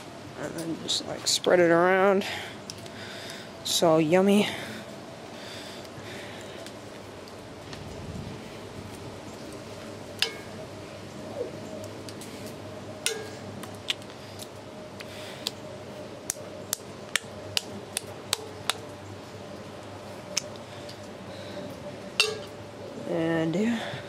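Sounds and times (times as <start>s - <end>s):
metal spoon clinking on cast iron: 22.2s - 22.5s.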